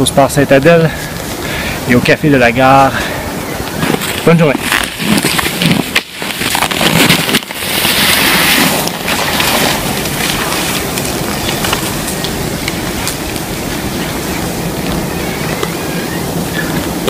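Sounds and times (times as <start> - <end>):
steady hiss: 0.0 - 17.0
skis scraping on snow: 3.7 - 17.0.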